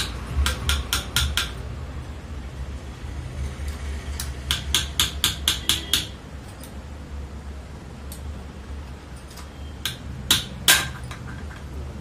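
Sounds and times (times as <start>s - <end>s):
hammer tapping on metal: 0.0s - 1.7s, 4.2s - 6.7s, 9.8s - 11.7s.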